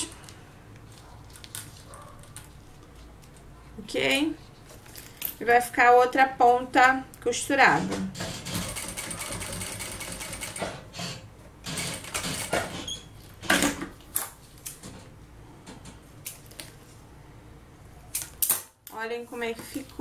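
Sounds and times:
sewing machine stitching: 8.2 - 12.9.

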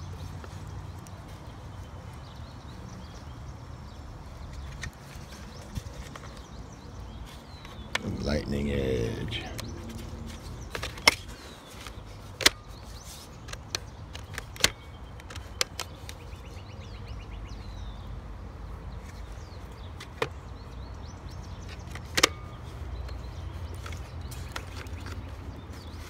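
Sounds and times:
plastic toy clicks and knocks: 10.6 - 16.4, 21.6 - 26.0.

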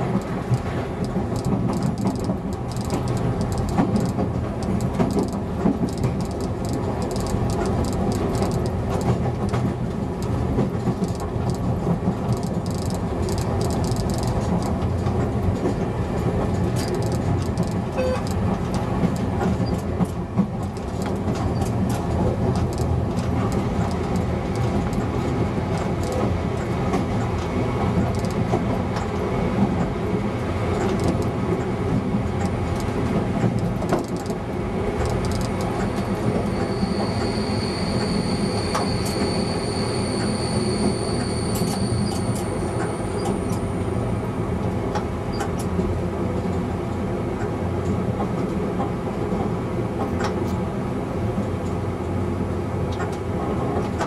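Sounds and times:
wheels clicking over rail joints: 0.0 - 29.9, 30.7 - 36.4
diesel railcar drone: 0.0 - 54.0
high steady squeal: 35.0 - 43.9.

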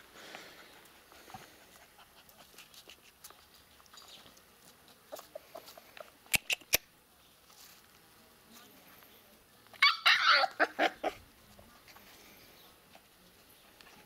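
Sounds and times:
puppy scuffling on ground: 0.7 - 6.1, 7.4 - 9.1
sharp clicks: 6.3 - 6.9.

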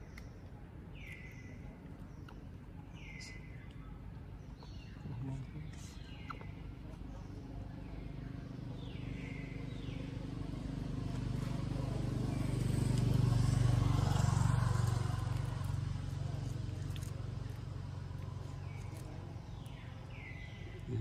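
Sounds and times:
vehicle engine passing by: 8.0 - 21.0.

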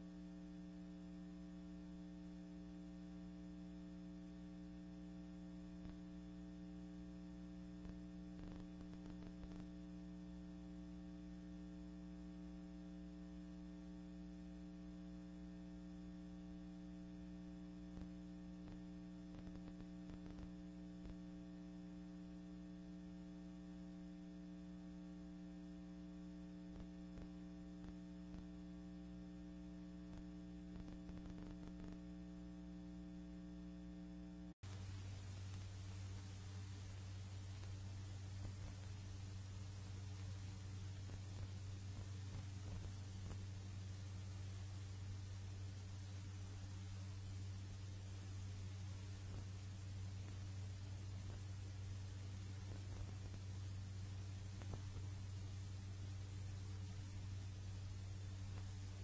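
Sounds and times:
electrical mains hum: 0.0 - 59.0
faint crackles: 5.7 - 10.4, 17.0 - 21.6, 26.0 - 32.9, 34.6 - 59.0.

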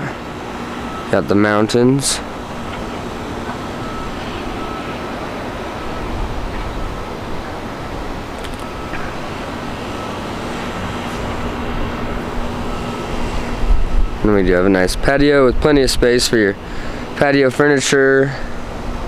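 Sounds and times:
outdoor background hum: 0.0 - 19.0.

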